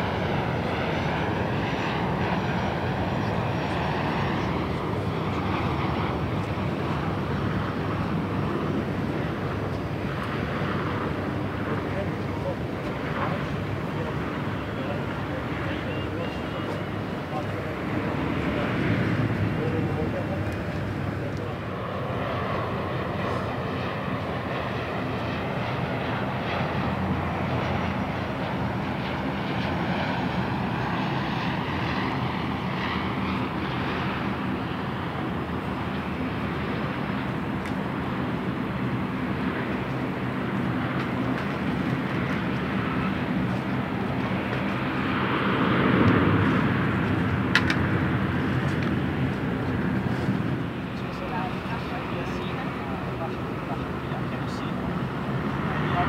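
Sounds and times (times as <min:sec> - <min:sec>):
turboprop airliner droning: 0:00.0 - 0:56.0.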